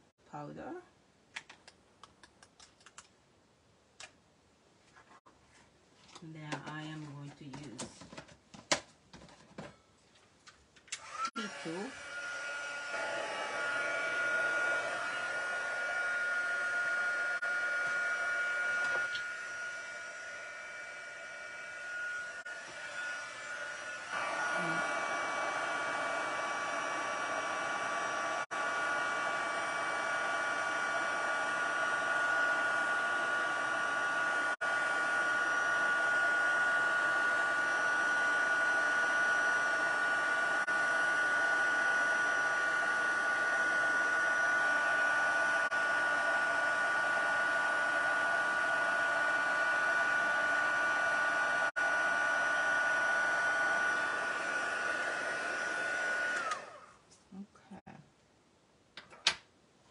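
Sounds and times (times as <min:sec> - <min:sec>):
heat tool blowing hot air: 0:11.0 - 0:56.8.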